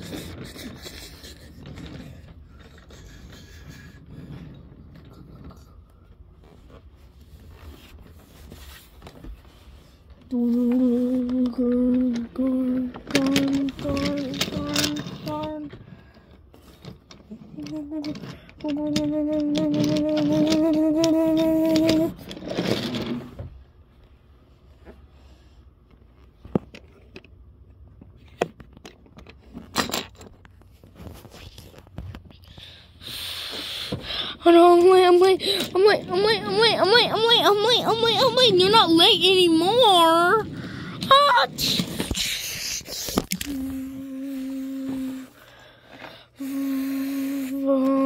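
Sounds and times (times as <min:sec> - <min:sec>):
wooden toy trains clicking: 0:00.0 - 0:05.9, 0:10.3 - 0:23.3, 0:33.8 - 0:45.3
person humming train noise: 0:10.3 - 0:15.8, 0:17.3 - 0:22.4, 0:33.0 - 0:45.4, 0:46.3 - 0:48.0.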